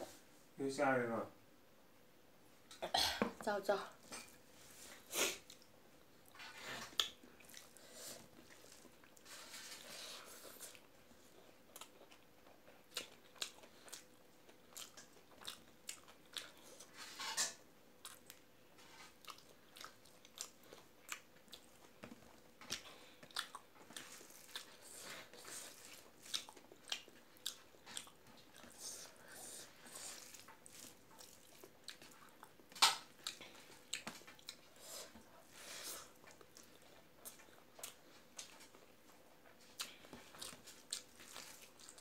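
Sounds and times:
person chewing and lip smacking: 6.8 - 9.3, 10.4 - 16.9, 18.0 - 18.4, 19.2 - 35.3, 36.0 - 42.0.

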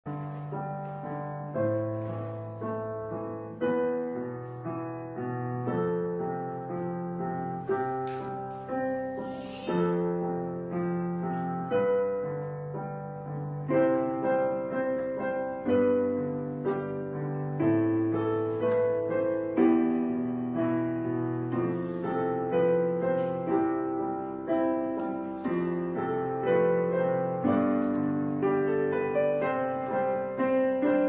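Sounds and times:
piano music: 0.0 - 31.0.

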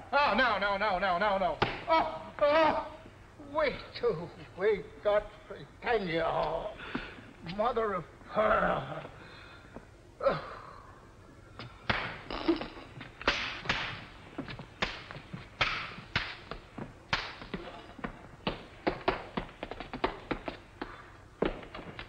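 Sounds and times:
hard shoes stamping on floor: 13.0 - 22.0.

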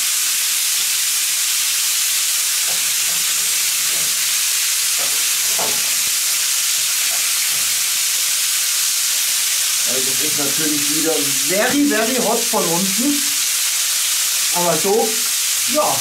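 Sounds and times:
meat sizzling on griddle: 0.0 - 16.0
tongs scraping and tapping: 2.6 - 6.1, 7.0 - 7.8.

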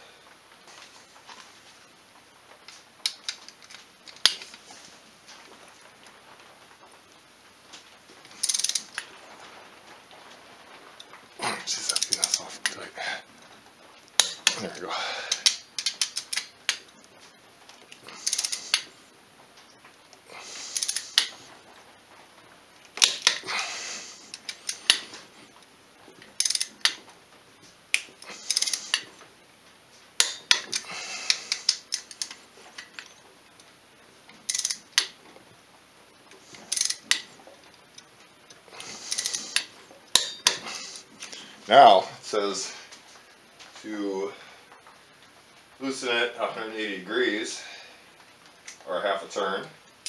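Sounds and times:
socket wrench ratcheting: 8.4 - 9.0, 18.2 - 18.8, 20.7 - 21.3, 26.4 - 27.0, 28.4 - 29.0, 34.5 - 35.1, 36.7 - 37.2, 39.1 - 39.6.

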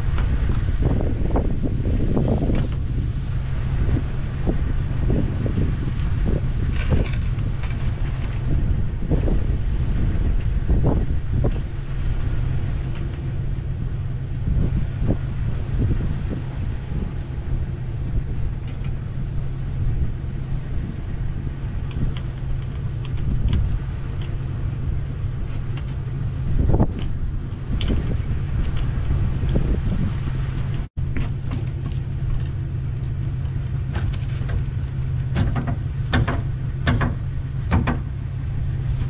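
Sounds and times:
steady low rumble: 0.0 - 39.0
wooden knocks and thuds: 35.3 - 38.2.

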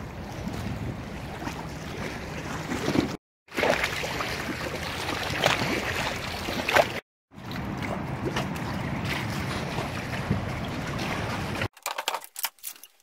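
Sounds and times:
wind rumble on microphone: 0.0 - 3.2, 7.4 - 11.7.

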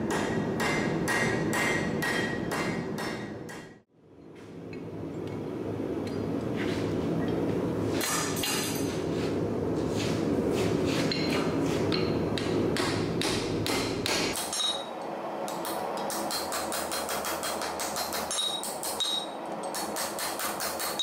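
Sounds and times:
hammer striking steel on anvil: 0.0 - 3.8, 11.1 - 14.9, 15.5 - 21.0.

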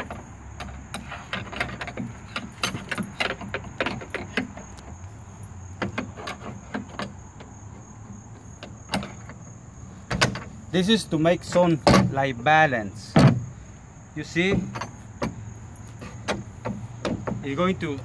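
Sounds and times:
metal rod clinking: 0.0 - 4.8
wooden knocks: 0.0 - 5.0, 5.8 - 9.4, 10.1 - 10.6, 14.4 - 17.8.

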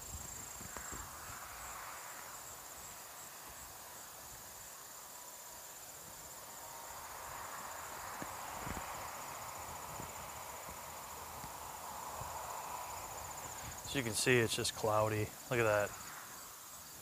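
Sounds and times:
insects trilling: 0.0 - 17.0
soft rushing noise: 6.0 - 16.8.

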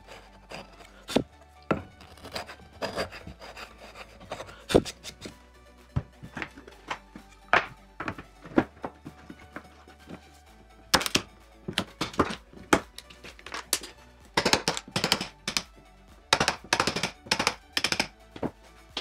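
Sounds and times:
background music: 0.0 - 19.0
hand tool knocking on wood: 6.0 - 10.2, 11.0 - 15.7, 16.3 - 18.6.

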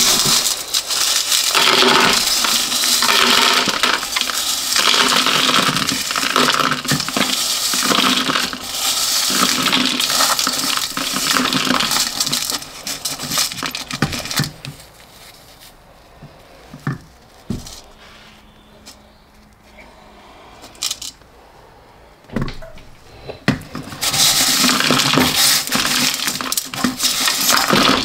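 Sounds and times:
metal pieces scraping and clinking: 0.0 - 14.7, 20.7 - 21.2, 23.8 - 28.0.

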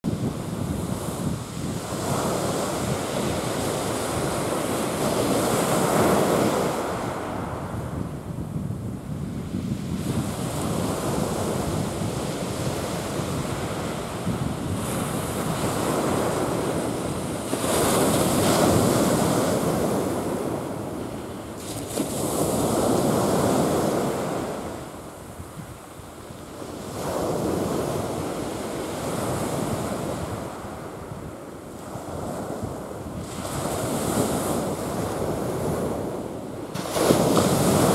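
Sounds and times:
wind buffeting microphone: 0.0 - 37.9
sea waves breaking on pebbly shore: 36.7 - 37.9.

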